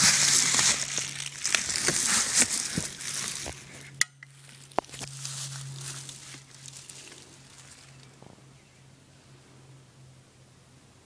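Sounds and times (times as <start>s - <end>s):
crunchy rustling with small clicks: 0.0s - 8.4s.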